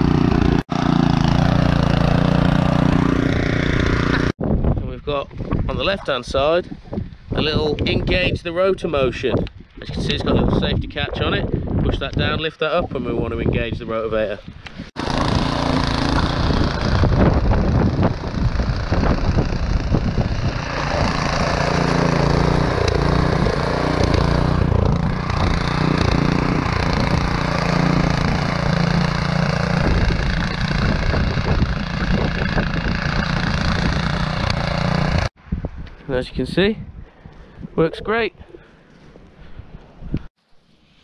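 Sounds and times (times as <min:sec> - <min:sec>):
rotavator engine running: 0:00.0 - 0:04.3, 0:15.0 - 0:35.3
tines churning soil: 0:00.0 - 0:04.4, 0:14.9 - 0:35.3.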